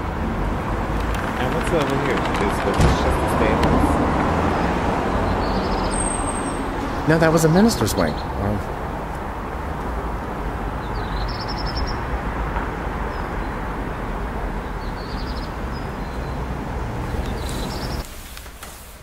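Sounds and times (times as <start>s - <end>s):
steady rumbling background noise: 0.0s - 5.7s
bird chirping: 0.8s - 8.7s, 10.8s - 12.1s, 14.6s - 18.1s.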